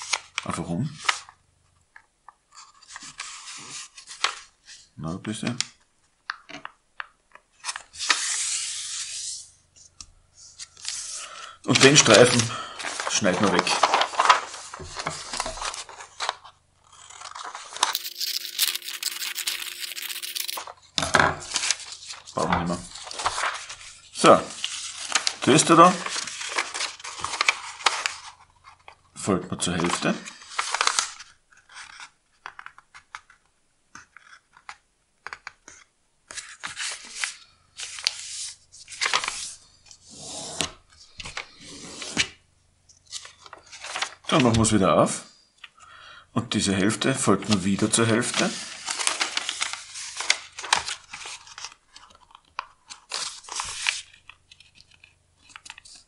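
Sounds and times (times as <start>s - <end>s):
paper rustling and crinkling: 2.5s - 4.9s, 10.5s - 20.8s, 21.4s - 29.0s, 29.8s - 33.4s, 35.4s - 40.0s, 43.0s - 44.7s, 47.4s - 56.0s
scissors snipping paper: 17.0s - 20.6s
small taps and crackles: 32.4s - 35.9s.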